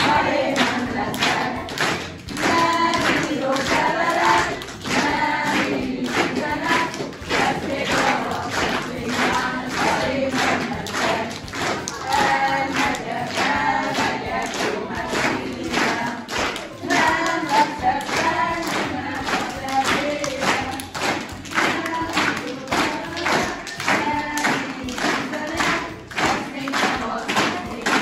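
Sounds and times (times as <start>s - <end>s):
group singing a folk song: 0.0s - 28.0s.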